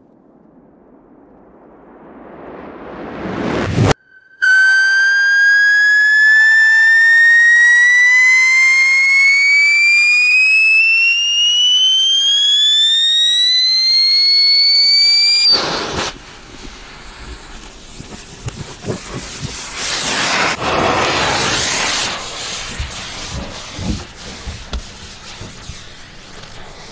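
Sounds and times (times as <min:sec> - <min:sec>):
firecracker piercing rising whistle: 0:03.2 - 0:16.3, 0:19.6 - 0:26.9.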